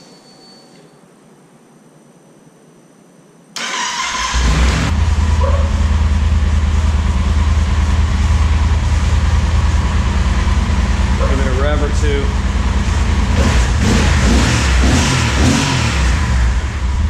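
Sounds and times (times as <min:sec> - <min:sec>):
electric starter cranking: 0:03.6 - 0:04.9
motorcycle engine idling: 0:05.0 - 0:14.1.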